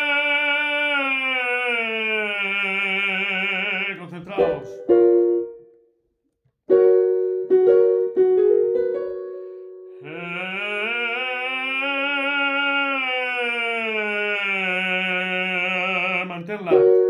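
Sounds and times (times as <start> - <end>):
man singing vocal warm-up: 0.0 - 4.8, 10.0 - 17.0
piano notes: 3.3 - 5.9, 6.7 - 12.7, 14.8 - 17.0.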